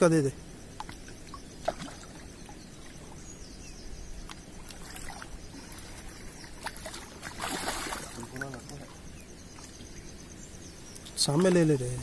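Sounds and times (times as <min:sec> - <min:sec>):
water lapping: 0:00.8 - 0:03.4, 0:04.2 - 0:10.0
fish thrashing in water: 0:01.6 - 0:02.2, 0:04.7 - 0:08.9.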